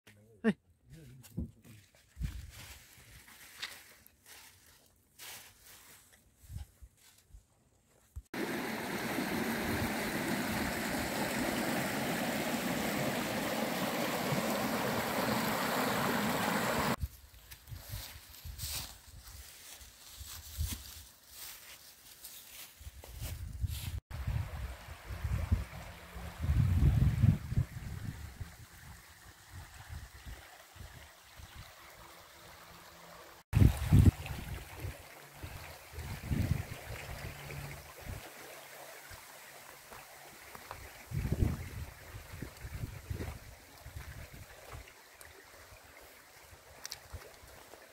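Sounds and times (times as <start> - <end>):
stream rushing over rocks: 8.4 - 17.0, 24.2 - 47.9
wind rumble on microphone: 23.2 - 30.3, 33.6 - 38.2, 41.1 - 44.5.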